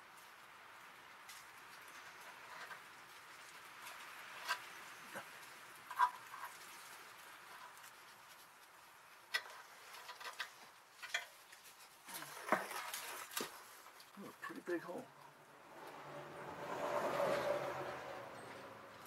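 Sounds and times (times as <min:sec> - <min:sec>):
scraping and rustling: 0:01.2 - 0:16.0.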